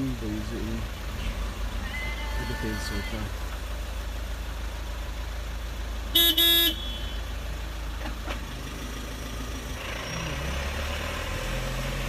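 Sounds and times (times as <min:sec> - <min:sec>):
vehicle horn blasts: 0:06.1 - 0:07.4.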